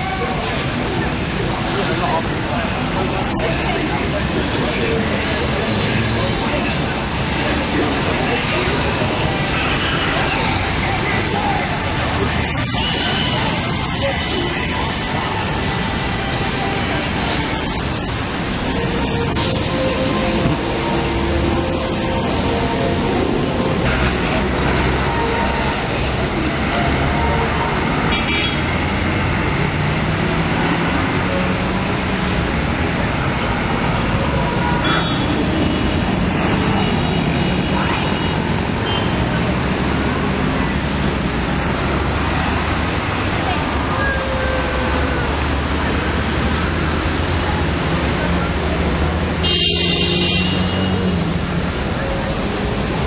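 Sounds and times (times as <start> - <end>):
traffic rumble: 0.0 - 53.0.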